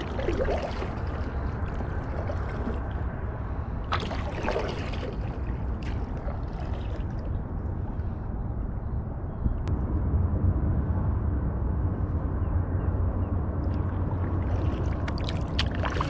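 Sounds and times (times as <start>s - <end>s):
water gurgling around kayak: 0.0s - 8.2s, 13.6s - 16.0s
low rumble: 0.0s - 16.0s.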